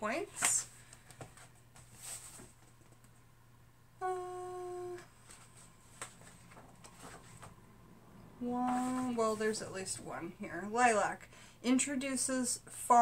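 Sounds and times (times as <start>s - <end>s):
book pages rustling: 0.4s - 3.1s, 5.2s - 7.6s, 8.6s - 9.6s
woman humming: 4.0s - 5.2s.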